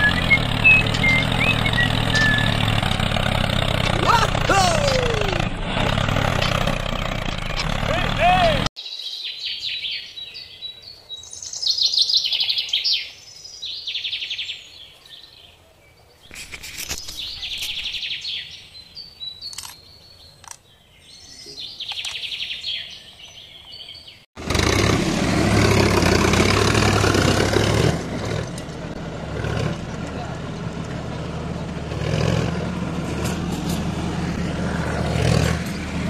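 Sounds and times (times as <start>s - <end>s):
small birds chirping: 0.0s - 2.7s, 7.9s - 24.3s.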